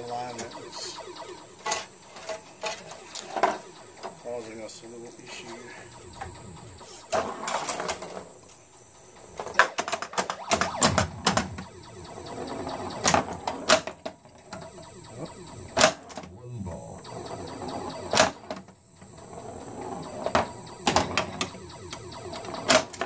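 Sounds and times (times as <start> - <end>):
faint high whine: 0.0 - 23.0
pinball machine clacks and knocks: 7.1 - 8.3, 9.2 - 11.6, 12.3 - 14.6, 19.8 - 23.0.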